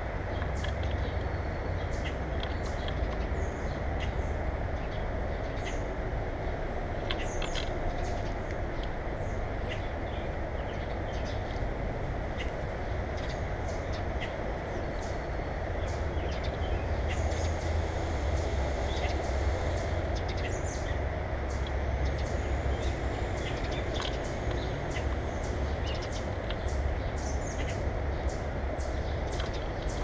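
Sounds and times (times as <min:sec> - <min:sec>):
steady low rumble: 0:00.0 - 0:30.0
birds pecking on metal feeder: 0:21.5 - 0:27.8.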